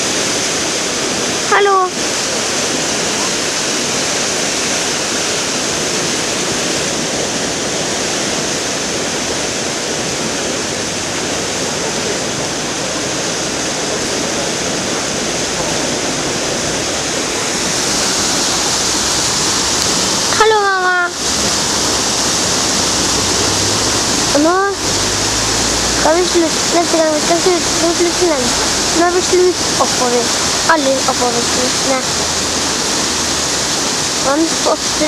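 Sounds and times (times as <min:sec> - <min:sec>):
turbulent water rushing: 0:00.0 - 0:35.0.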